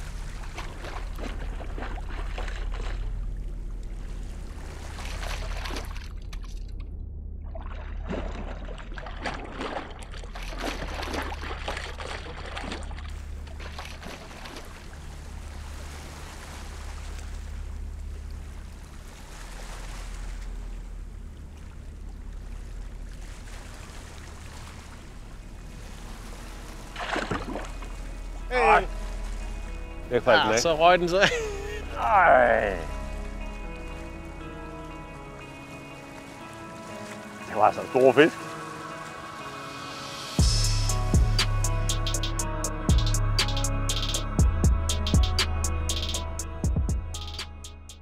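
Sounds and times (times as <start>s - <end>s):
steady low rumble: 0.0s - 35.2s, 40.4s - 48.0s
water splashing and sloshing: 0.0s - 40.5s
fish thrashing at surface: 7.5s - 14.8s, 27.0s - 27.8s.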